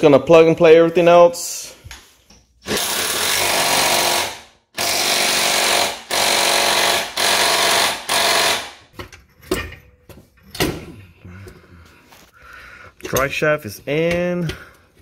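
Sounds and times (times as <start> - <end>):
impact wrench hammering rattle: 2.6 - 10.8.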